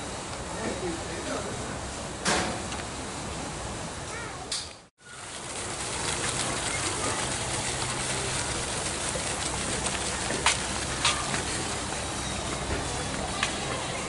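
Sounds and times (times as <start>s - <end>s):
pond fountain splashing: 5.0s - 14.0s.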